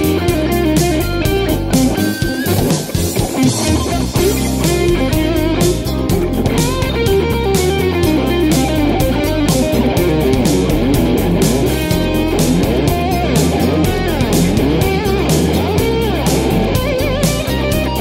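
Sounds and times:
drums and bass backing track: 0:00.0 - 0:18.0
electric guitar lead solo: 0:00.0 - 0:18.0.

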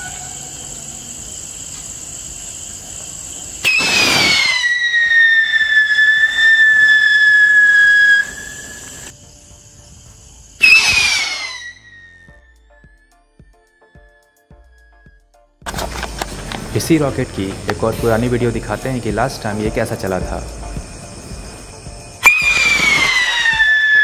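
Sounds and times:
whistling rocket launching: 0:03.6 - 0:09.1, 0:10.6 - 0:12.3, 0:22.2 - 0:24.0.

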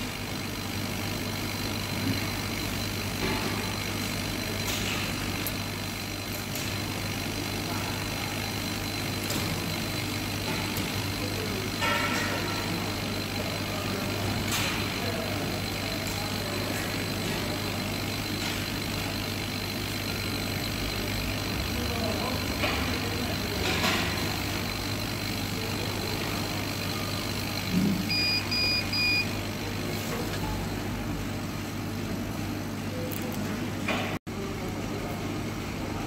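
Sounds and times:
laser cutter machine hum: 0:00.0 - 0:36.0
short high beeps: 0:28.1 - 0:29.4.

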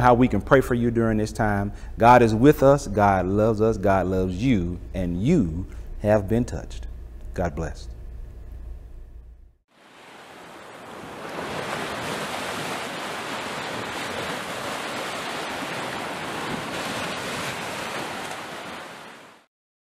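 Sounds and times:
ocean waves washing onto beach: 0:09.7 - 0:19.5.

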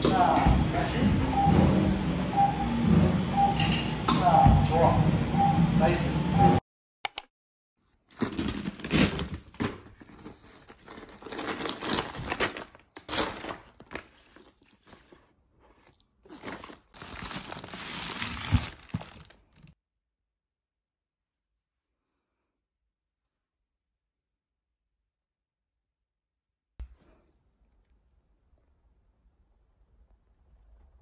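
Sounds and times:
plastic packaging crinkling: 0:08.0 - 0:19.8.

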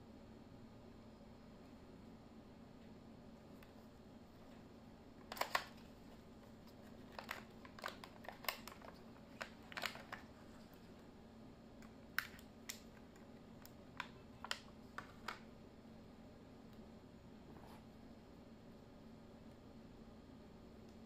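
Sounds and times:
plastic bag crinkling: 0:05.2 - 0:06.0, 0:06.6 - 0:10.9.

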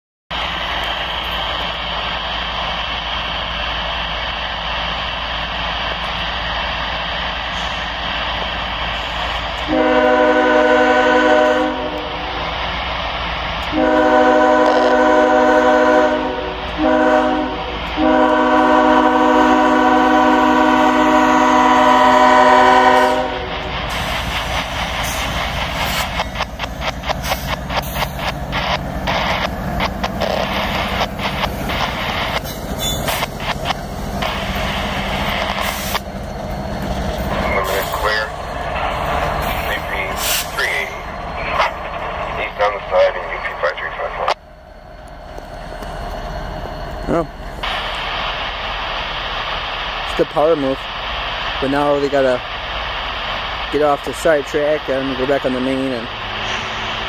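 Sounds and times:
train air horn blasts: 0:09.6 - 0:12.4, 0:13.7 - 0:23.7
train wheels clacking over rails: 0:21.5 - 0:43.4.

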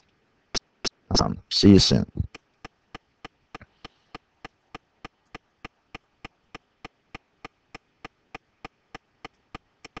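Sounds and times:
faint regular clicking: 0:02.3 - 0:10.0.

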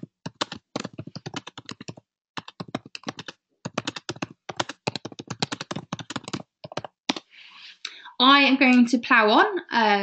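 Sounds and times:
fast keyboard typing: 0:00.0 - 0:07.3.

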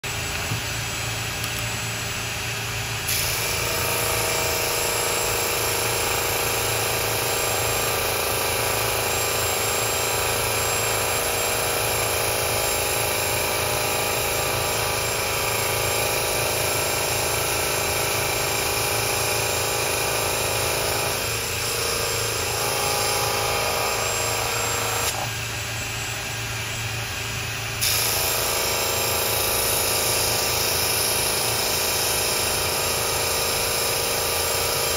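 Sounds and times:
drill spinning sanding drum: 0:00.0 - 0:34.9
vacuum running: 0:00.0 - 0:34.9.

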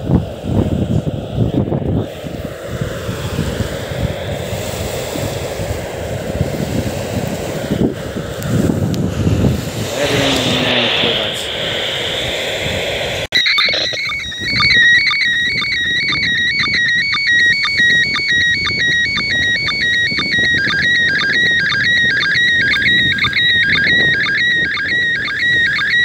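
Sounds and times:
radio rushing noise: 0:07.4 - 0:26.0
short regular signal pulses: 0:09.8 - 0:26.0
warbling pitch-hopping signal tone: 0:09.8 - 0:26.0.

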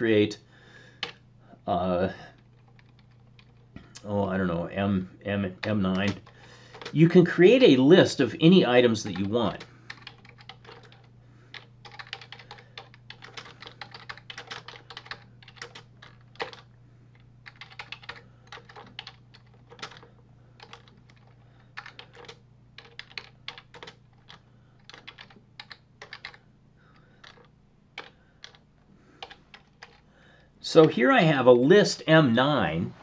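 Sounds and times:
low steady hum: 0:00.0 - 0:33.0
computer keyboard typing: 0:02.3 - 0:03.7, 0:05.5 - 0:07.0, 0:09.0 - 0:28.6, 0:29.2 - 0:30.0.

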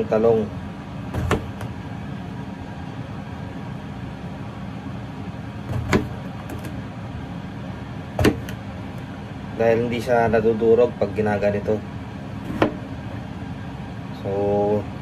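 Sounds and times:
steady background hum: 0:00.0 - 0:15.0
knife knocking on cutting board: 0:01.2 - 0:01.7, 0:08.2 - 0:08.6
knife slicing eggplant: 0:01.2 - 0:01.7, 0:05.7 - 0:06.8, 0:12.4 - 0:12.8.

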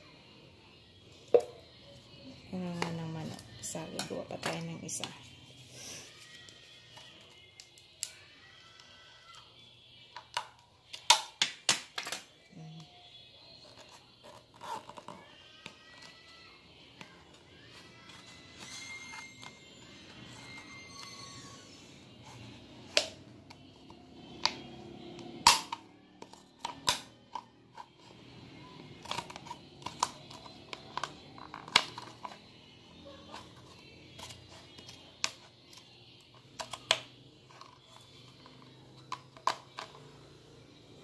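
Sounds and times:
scissors snipping plastic: 0:13.6 - 0:16.4, 0:22.2 - 0:28.0, 0:28.9 - 0:32.5, 0:33.3 - 0:40.0.

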